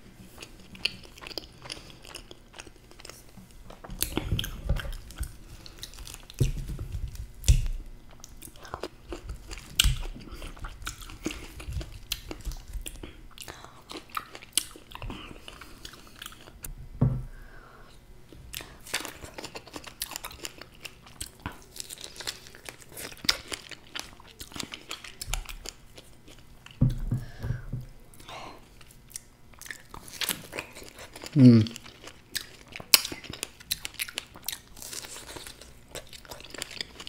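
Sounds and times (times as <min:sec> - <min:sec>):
chewing with wet mouth clicks: 0:07.4 - 0:16.6, 0:18.5 - 0:26.8, 0:28.8 - 0:37.0
low thump: 0:17.0 - 0:17.4.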